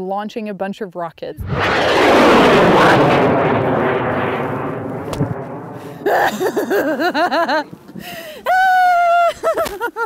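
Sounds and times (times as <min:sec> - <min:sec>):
rocket motor roaring: 0:01.4 - 0:06.3
sharp crack: 0:01.4 - 0:06.7.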